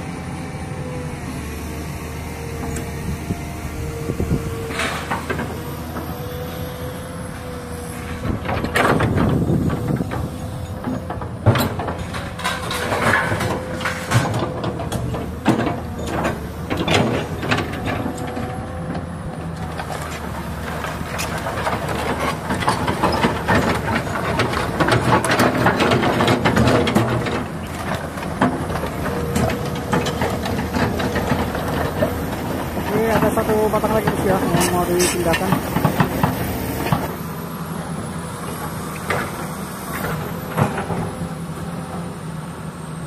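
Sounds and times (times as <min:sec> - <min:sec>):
excavator diesel engine running: 0:00.0 - 0:43.0.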